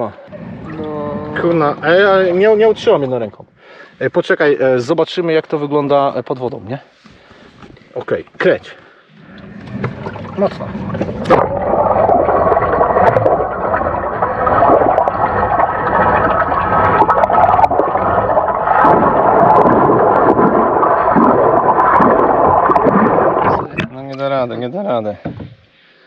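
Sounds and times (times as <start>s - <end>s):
propeller churning water underwater: 0.0s - 3.6s, 7.1s - 24.2s.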